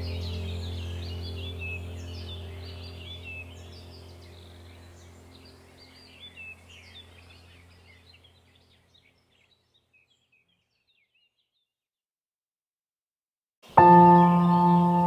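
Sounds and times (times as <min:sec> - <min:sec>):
low musical drone: 0:00.0 - 0:08.5, 0:13.8 - 0:15.0
birds chirping and whistling: 0:00.0 - 0:11.6.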